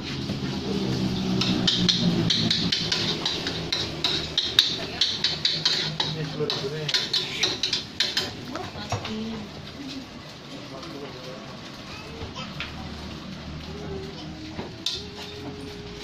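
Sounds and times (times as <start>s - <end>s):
spatula scraping against wok: 1.4s - 8.4s.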